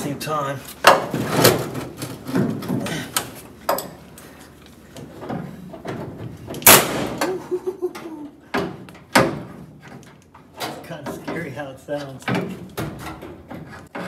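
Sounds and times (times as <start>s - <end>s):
pneumatic air gun banging: 5.9s - 7.4s.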